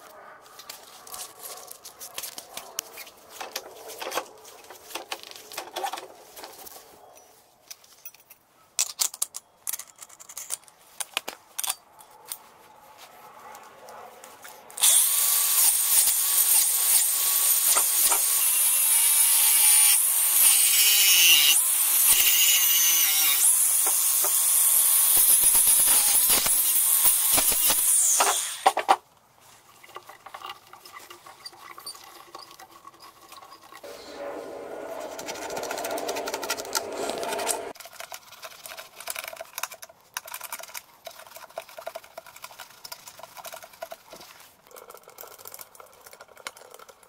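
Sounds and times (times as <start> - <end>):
angle grinder cutting: 14.8 - 28.7, 33.8 - 37.8.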